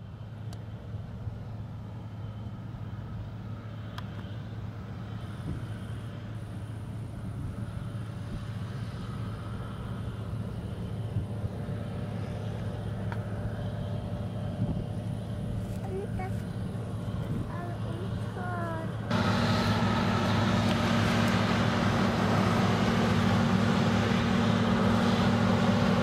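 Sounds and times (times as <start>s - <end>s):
combine harvester engine drone: 0.0s - 26.0s.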